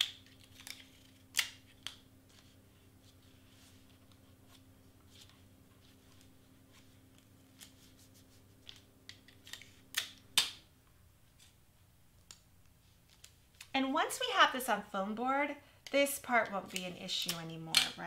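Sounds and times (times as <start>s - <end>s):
tape ripping and crackling: 0.0s - 2.0s.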